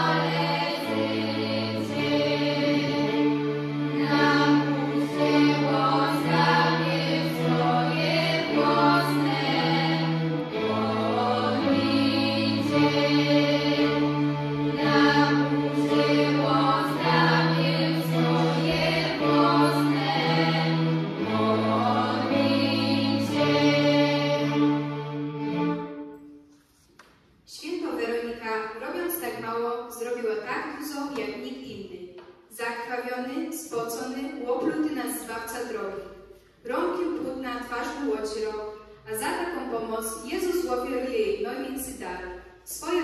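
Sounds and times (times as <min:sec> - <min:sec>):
choir singing a hymn: 0:00.0 - 0:26.1
cello bass notes: 0:00.0 - 0:26.2
violins: 0:00.0 - 0:26.4.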